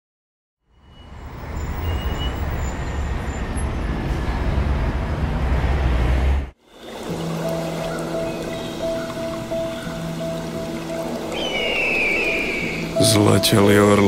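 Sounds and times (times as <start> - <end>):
low traffic rumble: 1.0 - 11.4.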